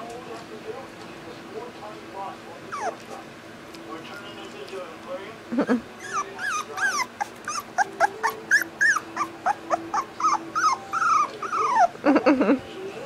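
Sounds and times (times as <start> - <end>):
low wavering puppy sound: 2.6 - 3.3, 6.0 - 12.3
puppy whining: 2.6 - 3.4, 5.8 - 12.5.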